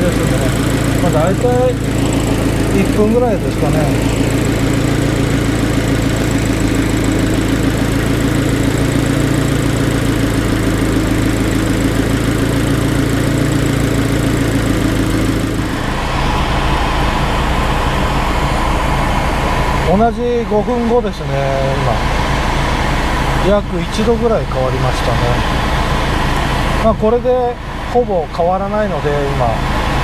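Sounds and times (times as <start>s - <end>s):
air conditioning hum with whine: 0.0s - 30.0s
car engine idling: 0.0s - 30.0s.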